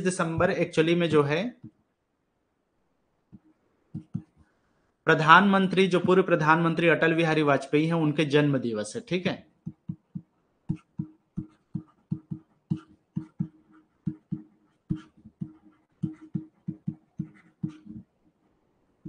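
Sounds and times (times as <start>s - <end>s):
stylus tapping on tablet: 3.3s - 4.5s, 9.6s - 18.2s.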